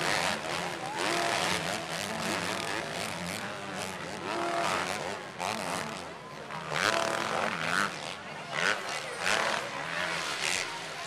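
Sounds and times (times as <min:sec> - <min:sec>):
dirt bike engines revving: 0:00.0 - 0:11.0.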